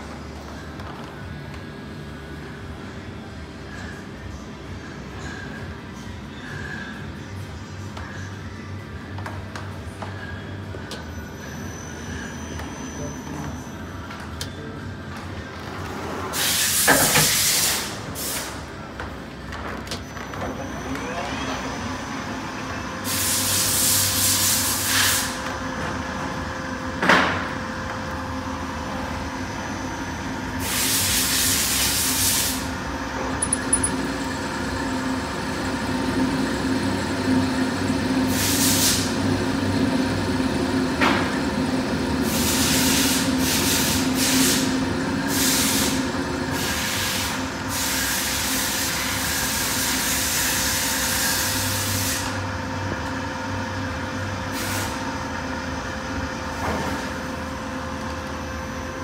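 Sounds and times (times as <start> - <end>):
lathe machine hum: 27.8 - 47.7.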